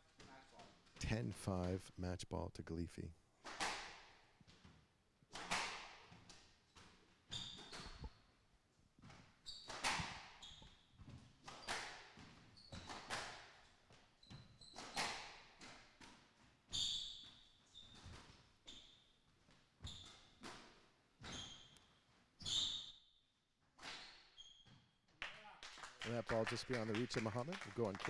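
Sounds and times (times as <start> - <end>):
shoes squeaking on wooden floor: 6.7 - 8.3, 9.1 - 13.1, 14.1 - 15.1, 16.6 - 20.6, 21.2 - 22.9.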